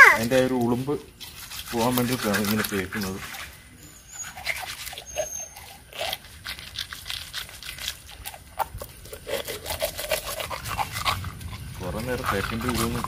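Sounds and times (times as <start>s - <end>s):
fish scraping on wet concrete: 0.0s - 13.0s.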